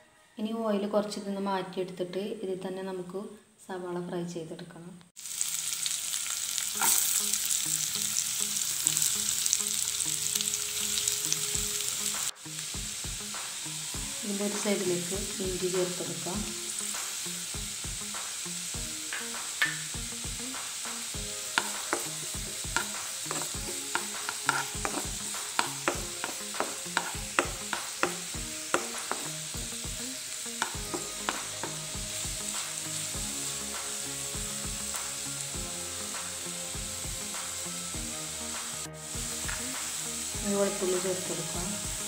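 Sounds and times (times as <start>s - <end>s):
onions sizzling in oil: 5.2s - 42.0s
spatula clicking and scraping pan: 6.8s - 7.1s, 21.5s - 29.4s, 30.6s - 31.8s.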